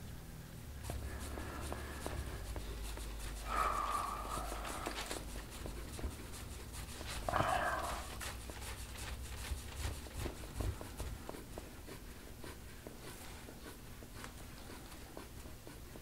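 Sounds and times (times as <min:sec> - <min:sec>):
hands rubbing and scraping skin: 0:00.8 - 0:15.8.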